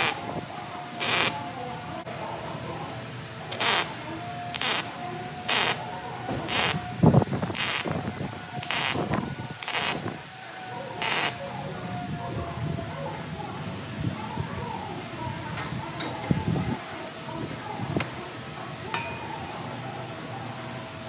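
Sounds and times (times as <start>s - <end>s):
welding arc hissing: 0.0s - 0.3s, 1.0s - 1.4s, 3.5s - 6.8s, 7.5s - 8.0s, 8.6s - 10.2s, 11.0s - 11.4s.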